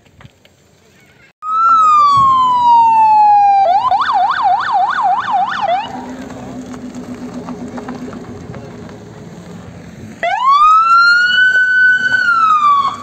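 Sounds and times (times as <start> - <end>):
electronic siren wailing and yelping: 1.4 - 6.0, 10.2 - 13.0.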